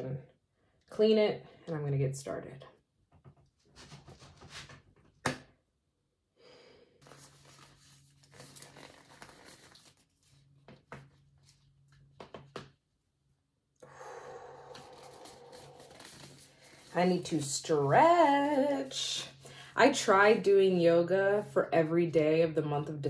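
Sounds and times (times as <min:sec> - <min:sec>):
glove rustling and stretching: 0:07.0 - 0:10.6, 0:14.7 - 0:17.0.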